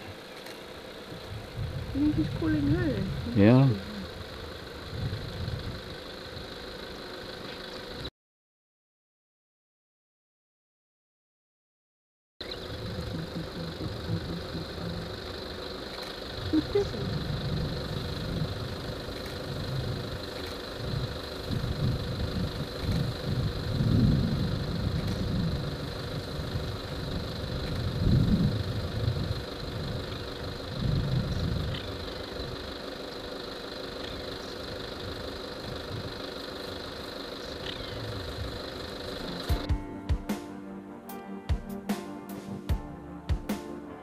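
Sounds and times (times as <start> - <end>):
vehicle engine idling: 0.0 - 8.1, 12.4 - 39.8
faint high tone: 16.4 - 17.4.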